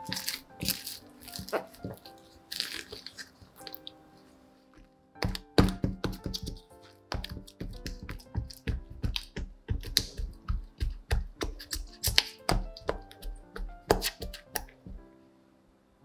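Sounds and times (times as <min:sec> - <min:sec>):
soft background music: 0:00.0 - 0:16.0
sharp taps and knocks: 0:05.2 - 0:15.0.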